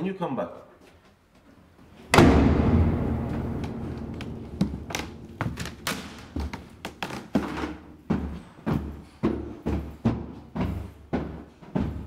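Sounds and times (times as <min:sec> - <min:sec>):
wooden door slamming: 0:02.1 - 0:06.7.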